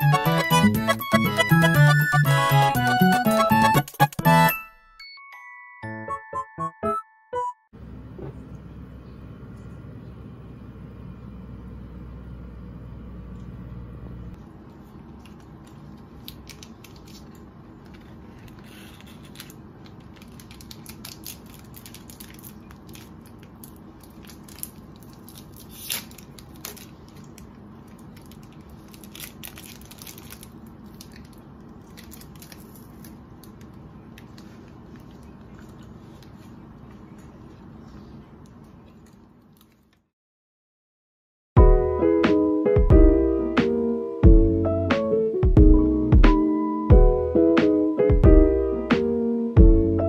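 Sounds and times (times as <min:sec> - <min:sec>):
low hum: 0:07.8 - 0:16.1
crinkly paper rustling: 0:14.4 - 0:40.0.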